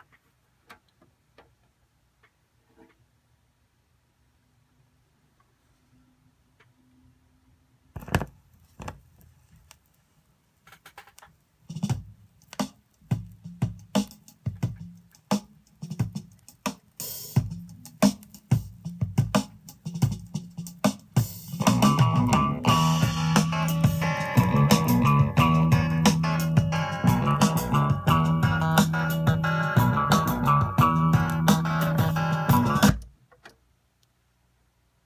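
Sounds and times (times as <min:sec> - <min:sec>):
drum hits: 0:17.4 - 0:33.1
band with guitar and bass: 0:21.6 - 0:33.0.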